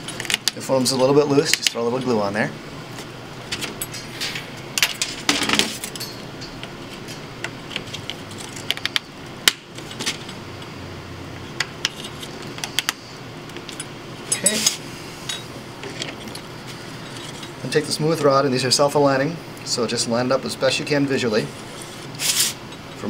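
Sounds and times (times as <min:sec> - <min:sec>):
metal clinking on wood: 0:05.7 - 0:06.6.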